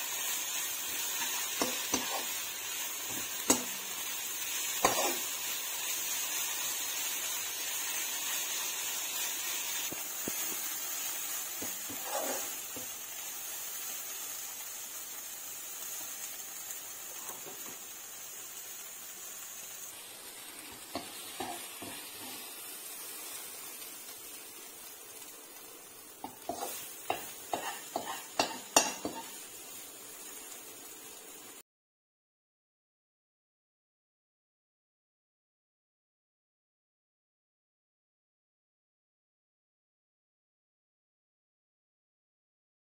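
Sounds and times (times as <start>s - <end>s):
food sizzling in a wok: 0.0s - 31.6s
metal spatula scraping and knocking: 11.6s - 12.9s, 26.2s - 29.3s.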